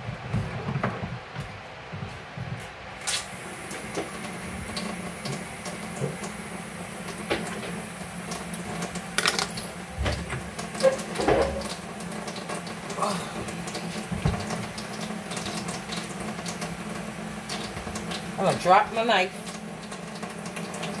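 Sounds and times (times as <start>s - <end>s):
kitchen things clicking on table: 9.2s - 9.6s.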